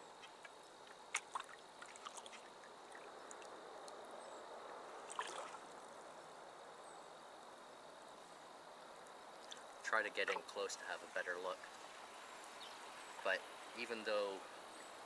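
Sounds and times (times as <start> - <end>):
small water splash: 0.3 - 4.1, 4.7 - 5.8
paddle swishing through water: 1.1 - 3.1.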